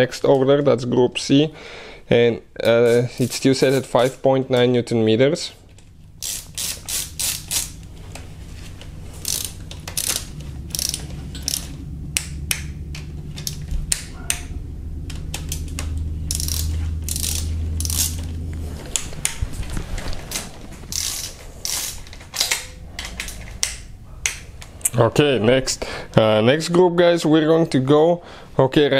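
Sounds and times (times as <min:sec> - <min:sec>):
low steady hum: 0:00.0 - 0:28.9
ratchet wrench clicking: 0:06.2 - 0:07.8, 0:09.2 - 0:14.4, 0:15.3 - 0:18.3, 0:20.9 - 0:24.5.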